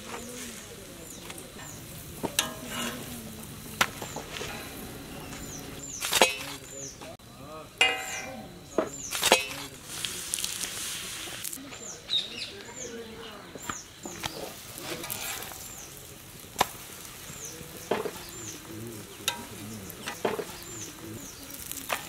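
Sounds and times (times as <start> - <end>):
light sizzle: 0.0 - 22.0
metal clanks and scrapes on griddle: 1.5 - 6.9, 7.8 - 10.1, 14.0 - 16.0, 16.6 - 22.0.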